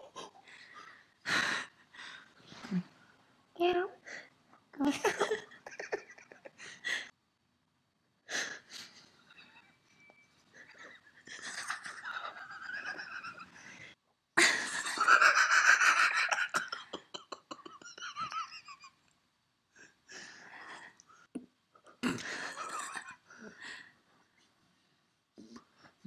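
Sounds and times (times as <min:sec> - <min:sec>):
person giggling: 0:04.9 - 0:07.1, 0:14.4 - 0:19.0.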